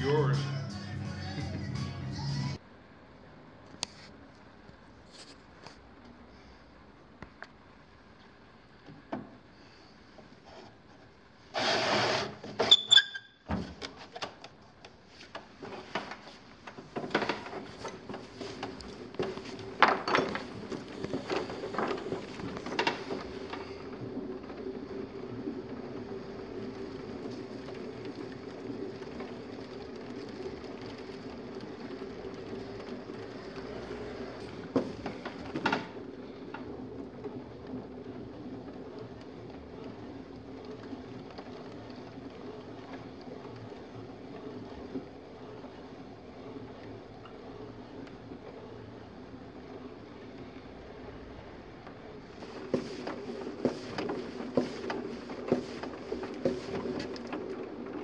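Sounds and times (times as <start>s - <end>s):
potter's wheel humming: 0.0s - 2.6s, 6.9s - 58.0s.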